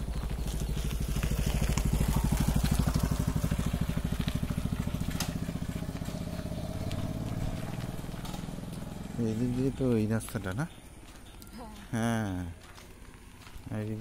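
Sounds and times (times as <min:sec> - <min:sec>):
motorcycle passing by: 0:00.0 - 0:14.0.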